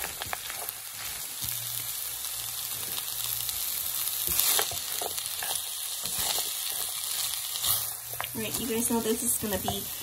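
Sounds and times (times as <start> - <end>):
food sizzling in a pan: 0.0 - 10.0
spatula scraping a pan: 4.2 - 8.3.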